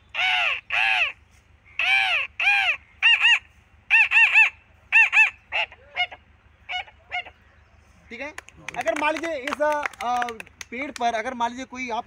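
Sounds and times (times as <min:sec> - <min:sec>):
man imitating parrot screeches: 0:00.2 - 0:07.3.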